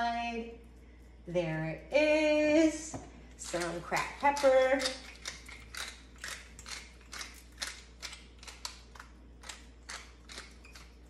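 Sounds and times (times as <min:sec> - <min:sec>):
pepper mill grinding: 0:03.4 - 0:11.0.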